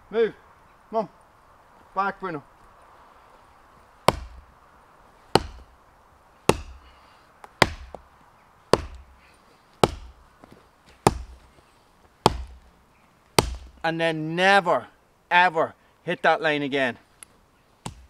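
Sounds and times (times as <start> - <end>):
axe chopping tree trunk: 4.0 - 4.5, 5.3 - 5.8, 6.4 - 8.1, 8.7 - 10.2, 10.9 - 11.5, 12.2 - 12.7, 13.3 - 13.8.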